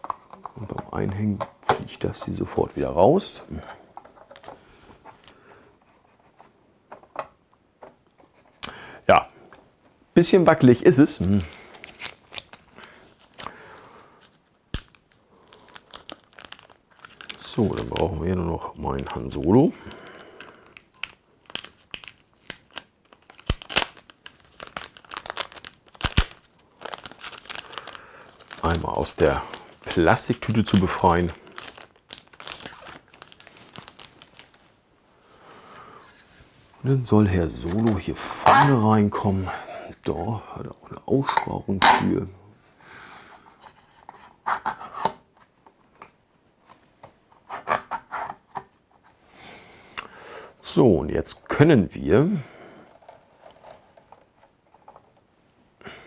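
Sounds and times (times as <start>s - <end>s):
plastic parts rubbing and clicking: 0.0s - 2.6s, 3.9s - 8.7s, 43.5s - 49.2s, 52.9s - 55.3s
plastic bag crinkling and tearing: 11.6s - 13.5s, 14.8s - 18.4s, 20.1s - 34.8s.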